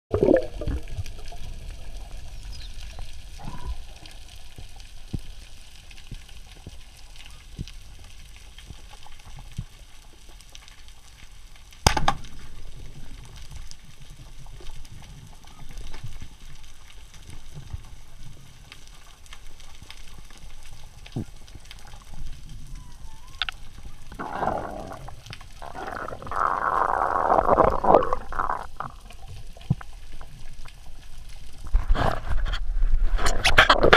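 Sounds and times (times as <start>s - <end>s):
rushing gurgling water: 0.1s - 3.8s, 24.0s - 29.9s
muffled underwater rumble: 20.8s - 33.9s.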